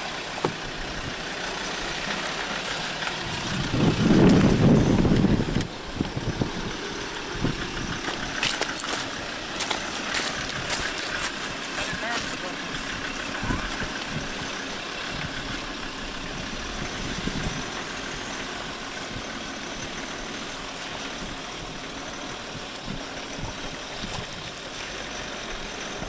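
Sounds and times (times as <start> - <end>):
engine running at low revs: 0.0 - 26.0.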